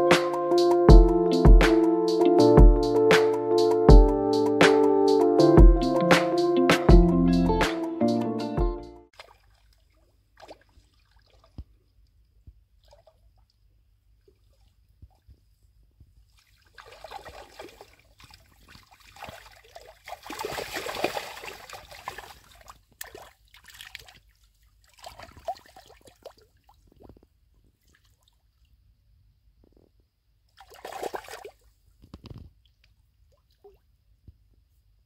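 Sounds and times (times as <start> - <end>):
splashing in shallow water: 9.1 - 11.8, 16.3 - 27.1, 30.6 - 31.7.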